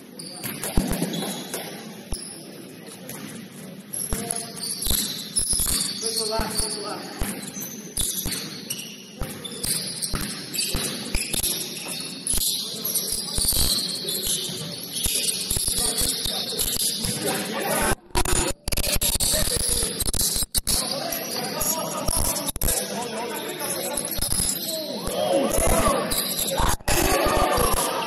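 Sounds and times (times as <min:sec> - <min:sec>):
sneaker squeaks: 0:00.0 - 0:17.5, 0:18.8 - 0:22.6, 0:23.2 - 0:26.8
basketball bouncing on court: 0:00.4 - 0:02.2, 0:04.1 - 0:12.0.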